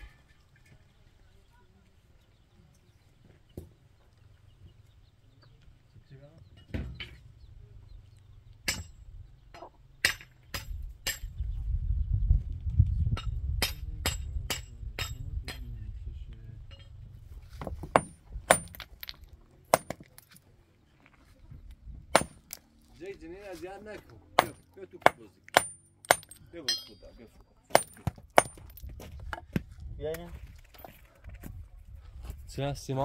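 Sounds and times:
hammer chipping stone: 17.8s - 20.3s, 22.1s - 22.6s, 24.4s - 27.0s, 27.7s - 28.8s.

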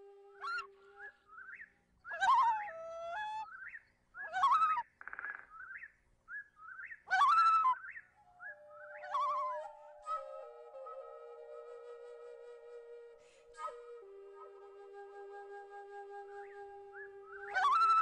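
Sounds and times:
bird chirping: 3.4s - 10.2s.

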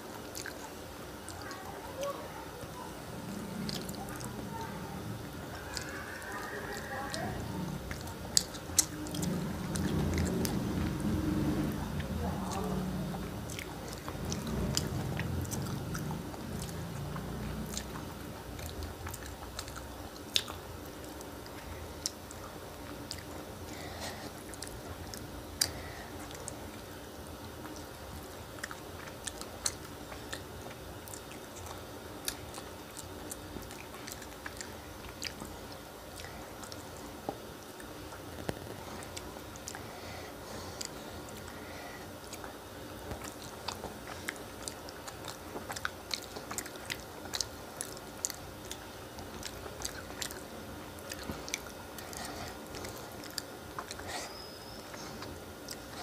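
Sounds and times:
wet chewing and lip sounds: 0.0s - 56.0s
mouth clicks and smacks: 7.8s - 23.4s.

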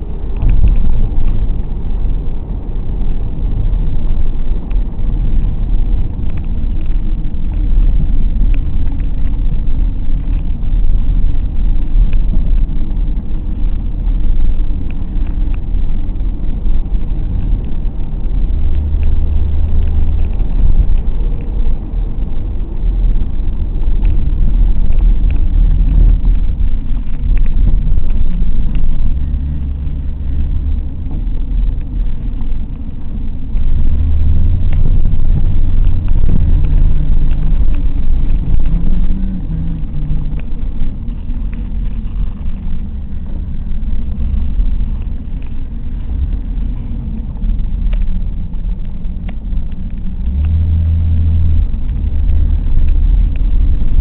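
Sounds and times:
car engine drone: 0.0s - 54.0s
road rumble inside car: 0.0s - 54.0s.

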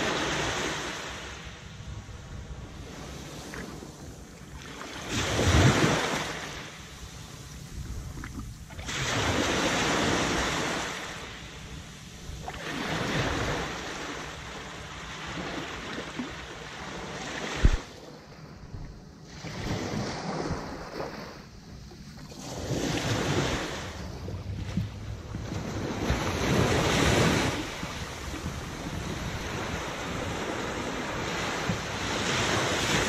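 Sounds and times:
waves washing over sand: 0.0s - 1.6s, 2.4s - 18.0s, 22.2s - 33.0s
wind on microphone: 5.1s - 6.4s, 7.1s - 10.8s, 17.4s - 17.9s, 18.6s - 33.0s.

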